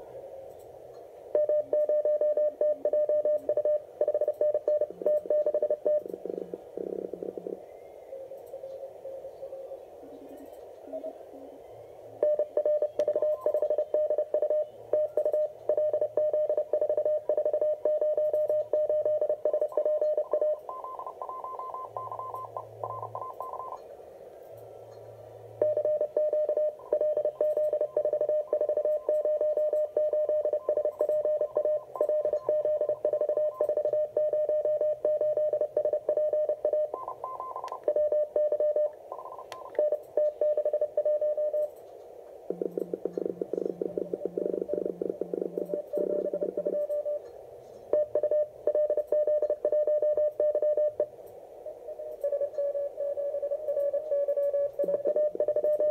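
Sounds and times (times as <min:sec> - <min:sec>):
strong morse code tone: 0:01.4 - 0:06.1, 0:12.2 - 0:23.8, 0:52.2 - 0:55.9
weaker higher morse code tone: 0:01.4 - 0:06.1, 0:12.2 - 0:23.8, 0:25.6 - 0:41.7, 0:51.9 - 0:55.9.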